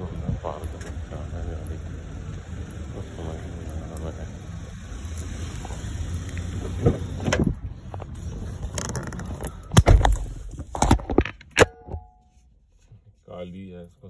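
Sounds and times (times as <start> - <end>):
car door shutting: 5.6 - 10.8.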